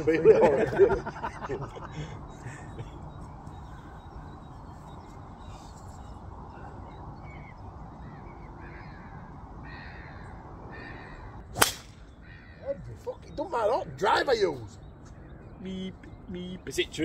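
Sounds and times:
short bird calls: 1.9 - 13.4.

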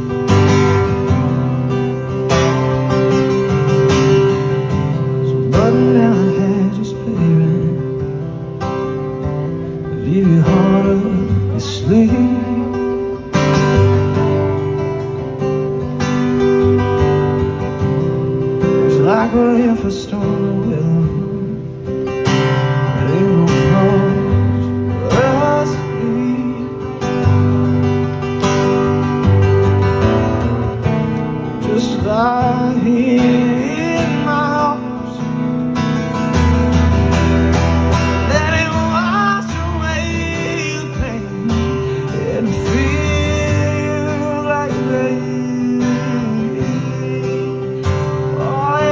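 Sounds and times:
acoustic guitar strumming: 0.0 - 48.9
man singing: 4.2 - 8.6, 9.7 - 14.2, 18.6 - 27.7, 31.4 - 35.6, 38.1 - 48.9.

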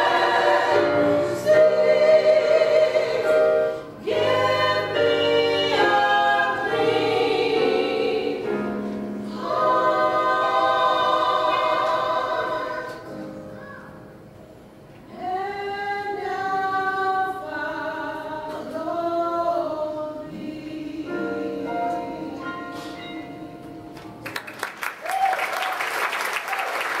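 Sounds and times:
women singing in harmony: 0.0 - 13.3, 15.1 - 24.0
audience applause: 24.2 - 27.0.

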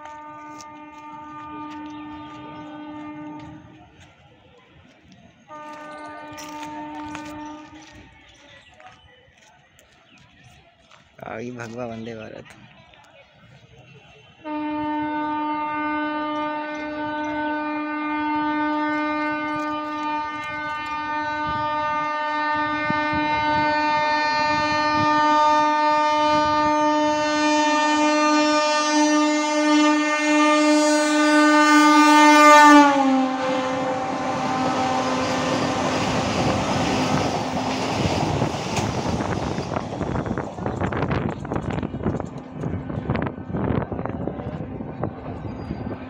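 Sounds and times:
train horn: 0.0 - 3.9, 5.5 - 8.1, 14.4 - 41.3
train coaches rushing by: 0.0 - 46.0.

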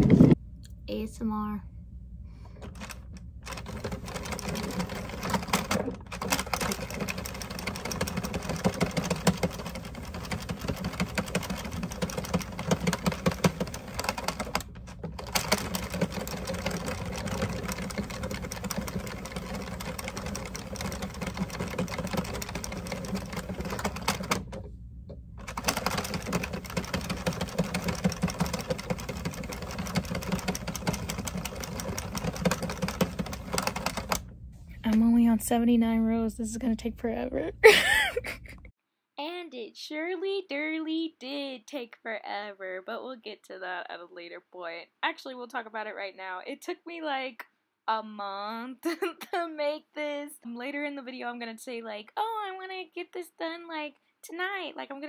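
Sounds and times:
knitting machine needles clicking: 2.6 - 24.6, 25.4 - 34.2.

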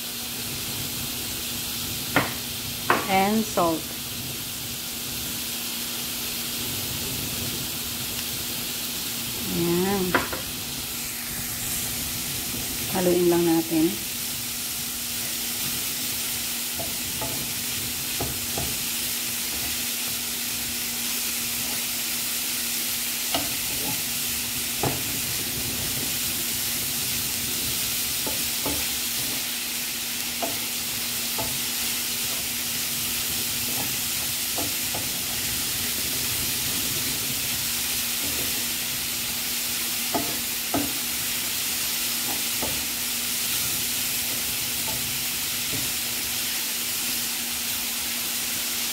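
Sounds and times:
food sizzling in a frying pan: 0.0 - 48.9
spatula knocking against pan: 28.2 - 29.4, 40.1 - 41.0.

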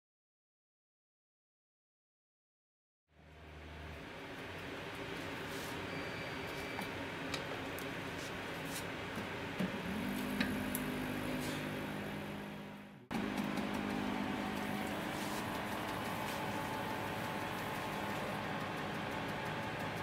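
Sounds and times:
mixer motor humming: 9.2 - 20.0
click: 10.4 - 10.9.

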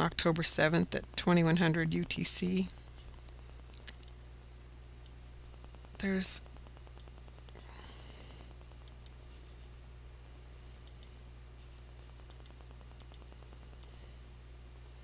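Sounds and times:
steady low hum: 0.0 - 15.0
computer mouse clicks: 8.8 - 9.2, 10.8 - 11.2, 11.8 - 14.0.

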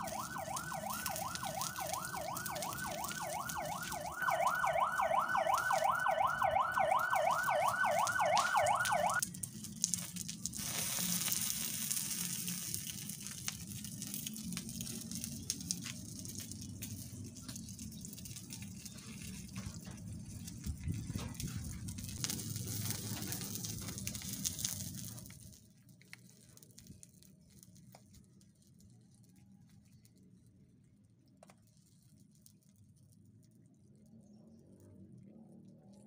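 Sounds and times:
toy siren rising sweeps: 0.0 - 9.2
faint hiss: 10.6 - 12.6.

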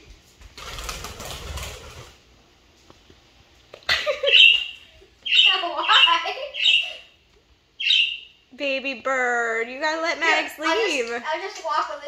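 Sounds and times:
wings fluttering: 0.4 - 2.2
budgerigar chirping: 4.3 - 7.1, 7.8 - 8.4.

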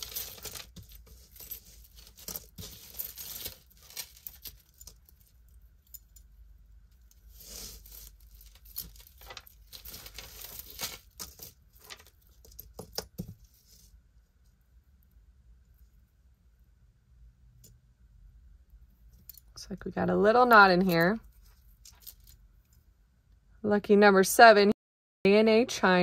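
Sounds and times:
rustling: 0.0 - 6.2, 6.9 - 14.0
beads and chain clinking: 0.0 - 6.4, 7.0 - 13.2, 20.4 - 22.4.

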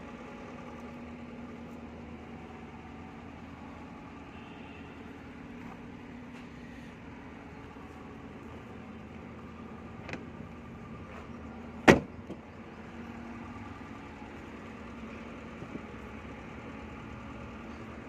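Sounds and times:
steady low hum: 0.0 - 18.0
car door clunk: 10.0 - 10.3, 11.8 - 12.4.

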